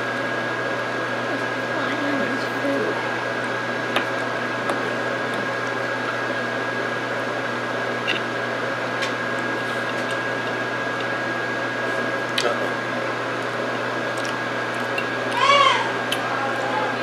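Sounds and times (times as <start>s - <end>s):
appliance hum and hiss: 0.0s - 17.0s
constant high whine: 0.0s - 17.0s.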